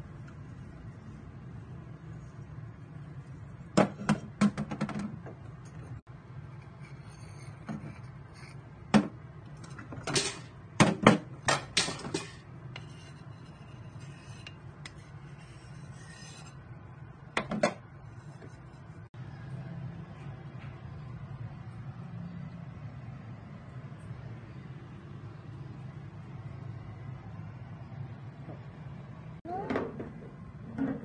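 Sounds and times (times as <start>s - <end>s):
steady low hum: 0.0s - 29.4s
metal burner caps clinking: 9.7s - 10.5s.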